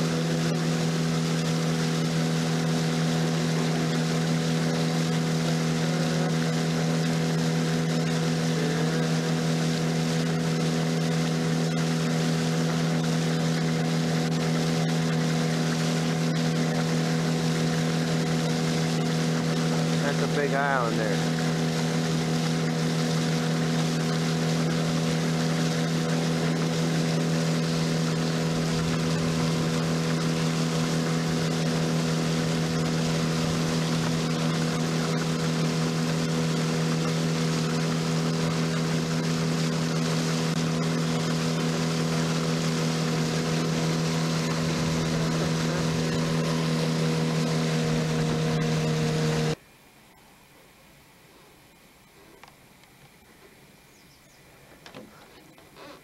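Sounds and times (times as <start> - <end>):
outboard motor humming: 0.0 - 49.6, 52.3 - 56.0
water rushing: 0.0 - 49.6
faint outdoor ambience: 49.6 - 56.0.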